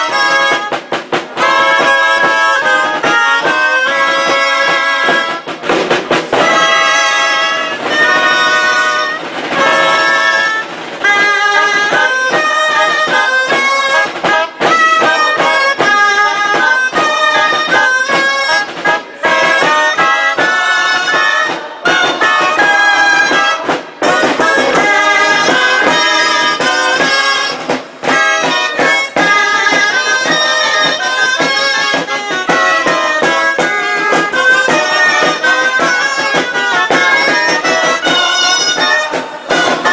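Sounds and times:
shawms playing folk tune: 0.0 - 39.9
small drums beating: 0.0 - 39.9.

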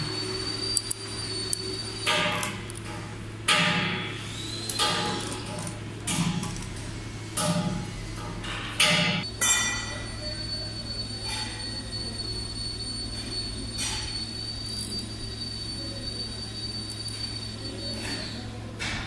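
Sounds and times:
thin high whine: 9.5 - 18.6.

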